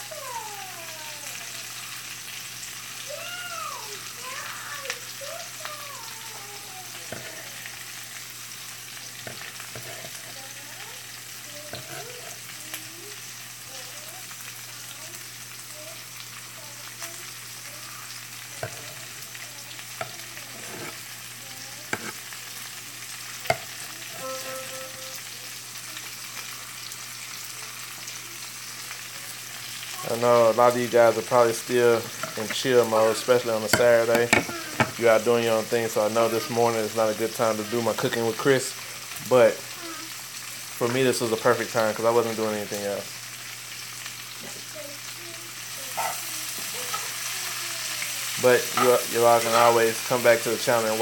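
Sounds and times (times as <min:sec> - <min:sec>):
vegetables sizzling in a pan: 0:00.0 - 0:51.0
short tone: 0:24.2 - 0:25.3.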